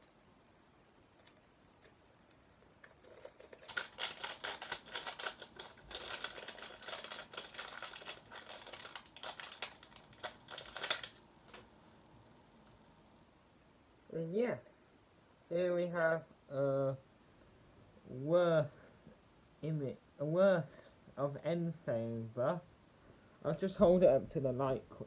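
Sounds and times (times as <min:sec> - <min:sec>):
paper wrapping rustling: 0:02.8 - 0:11.7.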